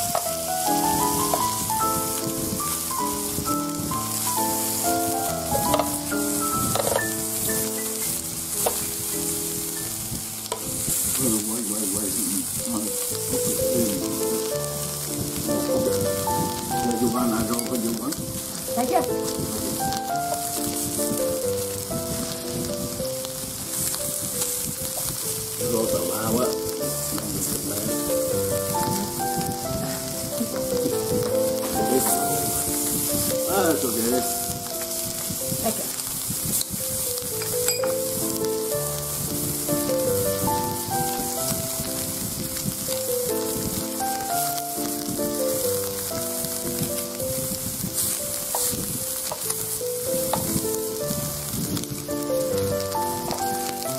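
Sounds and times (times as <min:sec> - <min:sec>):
background music of held notes: 0:00.0 - 0:53.9
food sizzling on a grill: 0:00.0 - 0:53.9.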